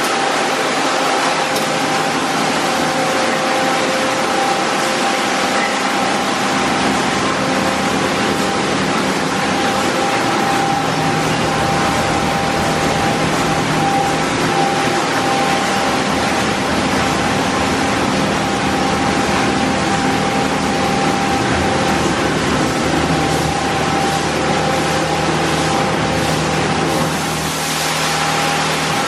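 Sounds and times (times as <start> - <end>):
faint machine whine: 0.0 - 29.0
water spray: 17.8 - 29.0.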